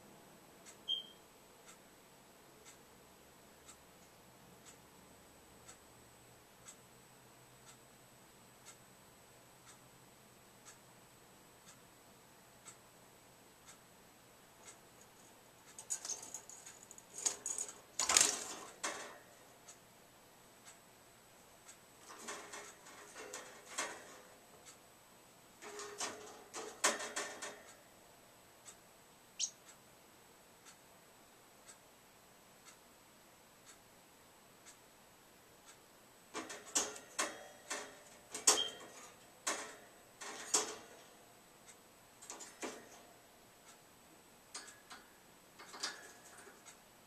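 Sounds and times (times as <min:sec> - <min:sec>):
faint steady ticking: 0:00.0 - 0:47.0
bird clicking on cage bars: 0:15.7 - 0:19.2, 0:22.0 - 0:24.3, 0:25.6 - 0:27.7, 0:36.3 - 0:41.1, 0:42.2 - 0:43.0, 0:44.5 - 0:46.7.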